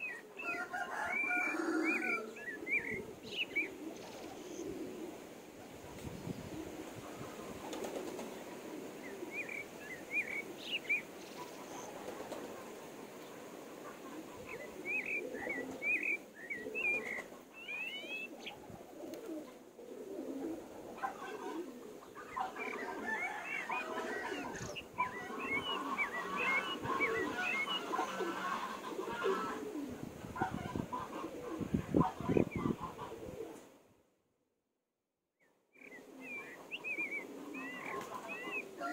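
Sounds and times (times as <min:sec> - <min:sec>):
chicks and ducklings peeping: 0:23.7 - 0:29.5.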